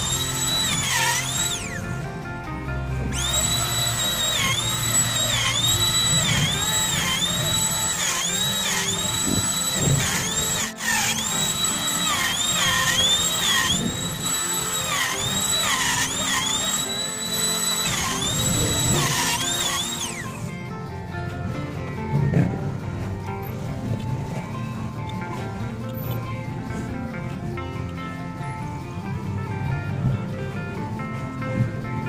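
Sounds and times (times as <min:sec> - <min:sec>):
electric router cutting wood: 0:00.0 - 0:20.6.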